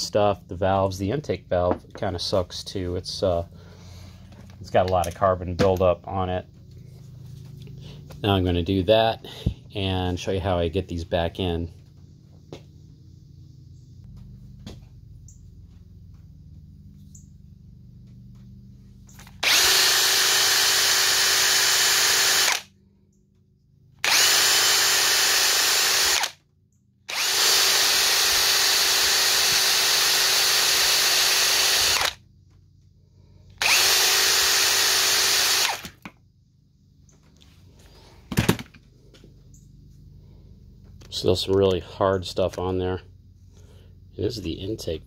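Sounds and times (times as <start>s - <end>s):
electric drill with wire brush: 19.2s - 22.7s, 24.0s - 26.4s, 27.1s - 32.2s, 33.6s - 36.0s.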